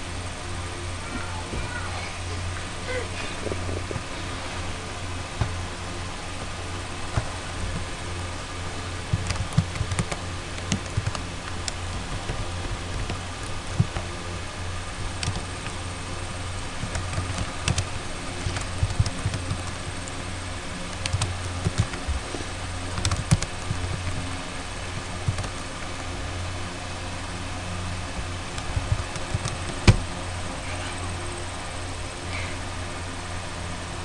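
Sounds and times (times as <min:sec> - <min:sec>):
steady low hum: 0:00.0 - 0:34.0
keyboard key clicks: 0:15.2 - 0:15.4.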